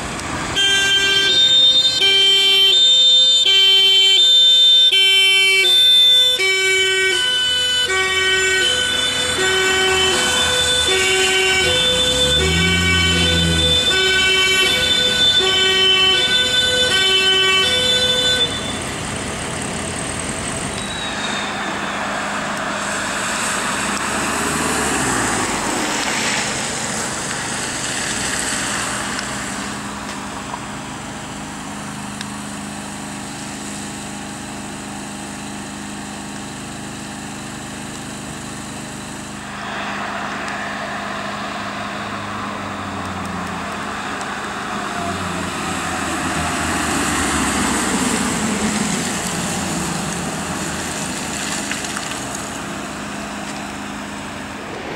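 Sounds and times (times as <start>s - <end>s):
vehicle engines passing: 0.0s - 3.4s, 5.8s - 54.9s
two-tone siren: 0.6s - 19.0s, 39.4s - 49.5s
tyre hiss on wet road: 18.0s - 34.2s, 38.8s - 54.9s.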